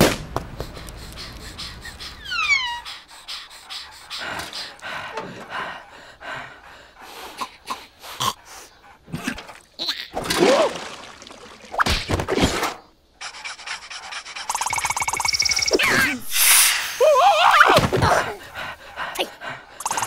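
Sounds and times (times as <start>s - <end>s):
breathy cartoon vocal noises: 0.7s - 10.7s, 15.8s - 20.0s
wavering cartoon cry: 2.1s - 3.1s.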